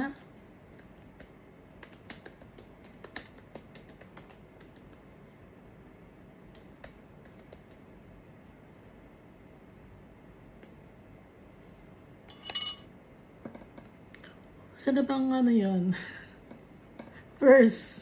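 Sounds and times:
faint keyboard typing: 0:00.6 - 0:05.2, 0:05.8 - 0:08.0.

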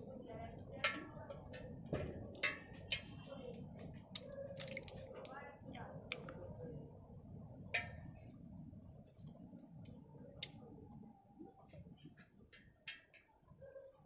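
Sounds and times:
snail shells clicking against steel bowl: 0:00.8 - 0:05.1, 0:05.7 - 0:06.4.

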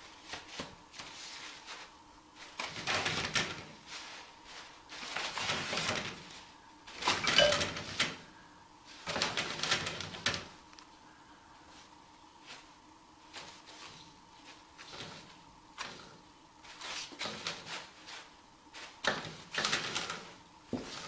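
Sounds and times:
toilet paper rustling: 0:00.0 - 0:10.6, 0:11.6 - 0:21.0.

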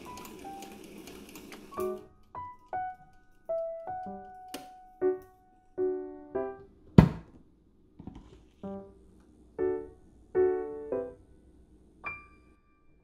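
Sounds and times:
electric piano melody: 0:00.0 - 0:06.8, 0:08.6 - 0:13.0.

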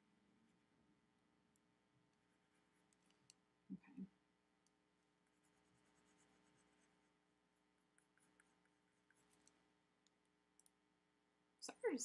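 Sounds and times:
pencil scratching on paper: 0:05.2 - 0:07.2, 0:08.0 - 0:09.6.

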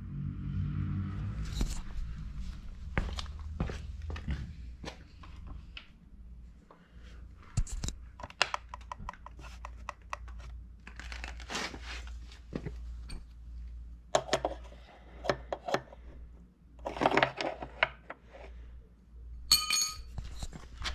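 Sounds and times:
metallic clink ringing: 0:19.5 - 0:20.2.

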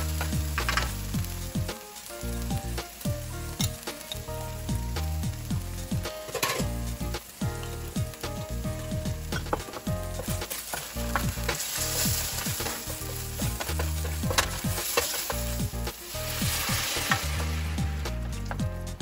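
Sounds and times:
sauce sizzling in hot oil: 0:00.0 - 0:19.0
oil popping: 0:05.9 - 0:18.8
wooden spatula scraping skillet: 0:06.2 - 0:06.7, 0:08.8 - 0:18.6.

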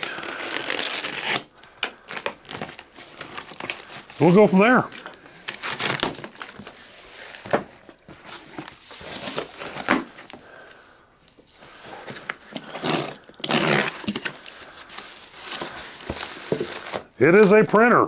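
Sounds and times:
box cutter slitting tape: 0:00.1 - 0:01.5, 0:12.5 - 0:14.4.

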